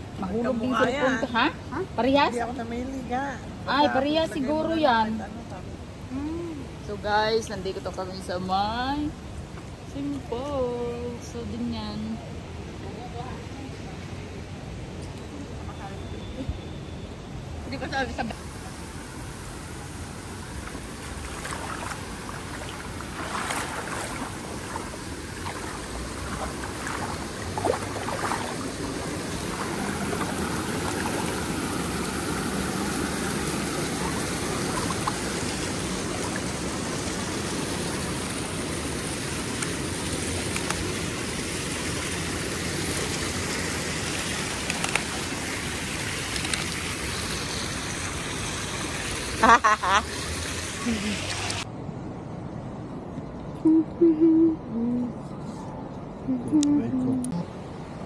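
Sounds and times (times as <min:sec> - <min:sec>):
rushing water: 0:17.6 - 0:52.0.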